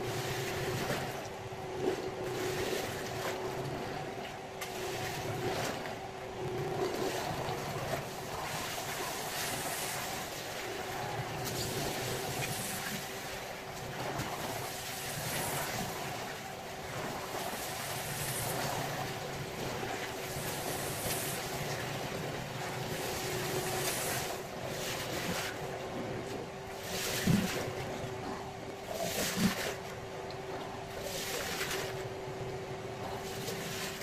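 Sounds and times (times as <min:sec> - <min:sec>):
water spraying: 0:20.3 - 0:21.8.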